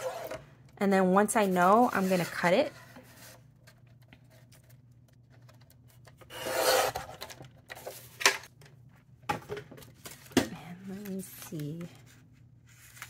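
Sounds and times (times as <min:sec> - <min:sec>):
paper trimmer blade slicing card: 0:06.3 - 0:07.1.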